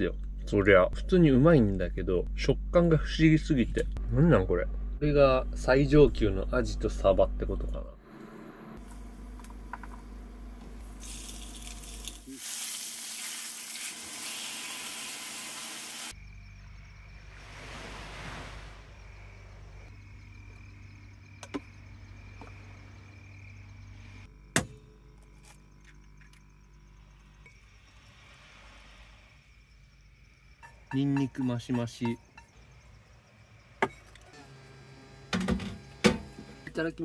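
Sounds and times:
food sizzling: 10.8s - 16.2s.

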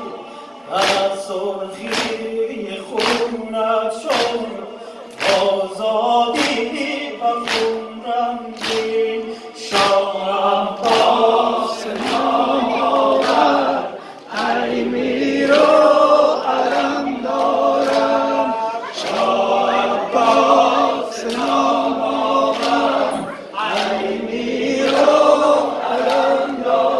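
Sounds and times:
men chanting in unison: 0.0s - 26.9s
hands slapping chests: 0.8s - 1.1s, 1.9s - 2.2s, 3.0s - 3.3s, 4.1s - 4.4s, 5.1s - 5.5s, 6.4s - 6.7s, 7.4s - 7.8s, 8.6s - 9.0s, 10.8s - 11.2s, 22.5s - 24.1s.

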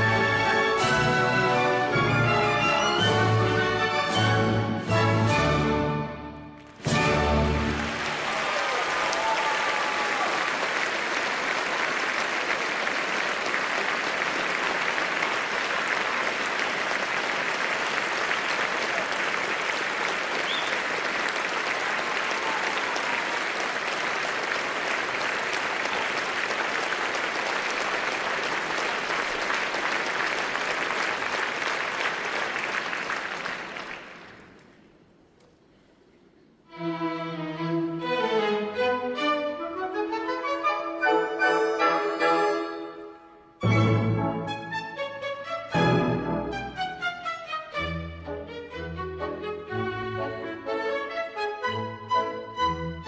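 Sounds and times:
orchestral music: 0.0s - 8.4s, 36.7s - 53.0s
audience applauding: 6.6s - 34.8s.

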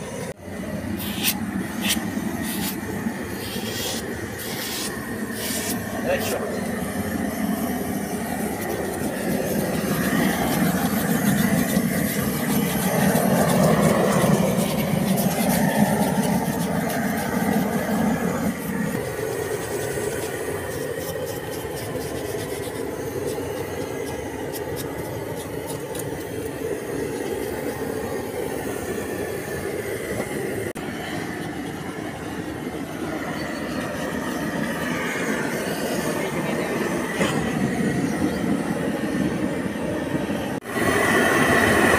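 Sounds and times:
propane torch burning: 0.0s - 41.9s.

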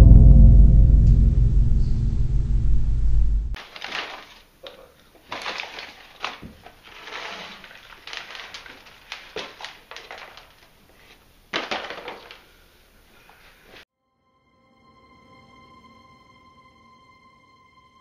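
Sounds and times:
paper popcorn bag crinkling: 3.6s - 13.8s.

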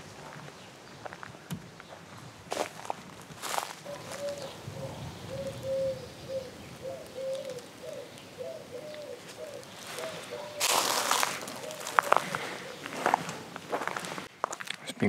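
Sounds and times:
bird cooing: 3.8s - 13.9s.

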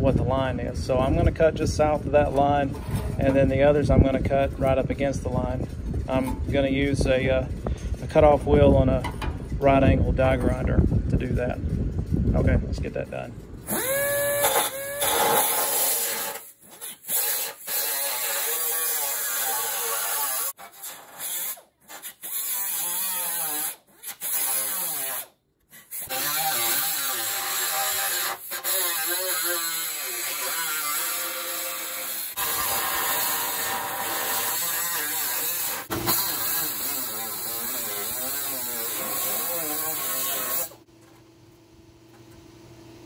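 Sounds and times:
air die grinder cutting metal: 13.6s - 40.8s.

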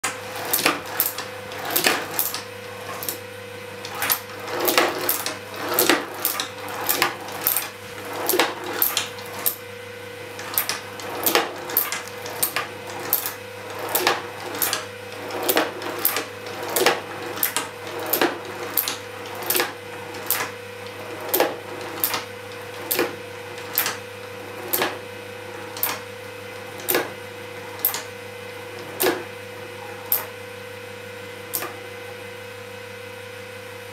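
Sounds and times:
toy mechanism knocking: 0.0s - 3.2s, 3.8s - 9.6s, 10.4s - 24.0s
steady hum: 0.0s - 30.6s.

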